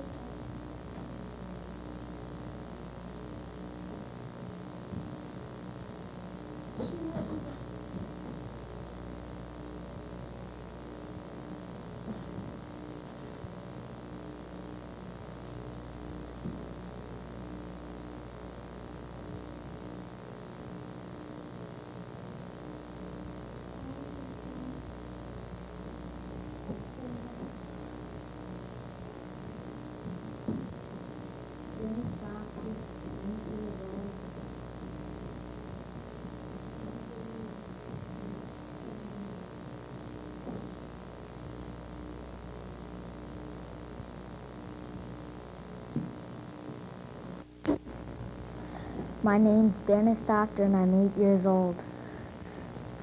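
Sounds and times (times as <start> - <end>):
electrical mains hum: 0.0 - 53.0
faint voice-like sounds: 6.7 - 7.8.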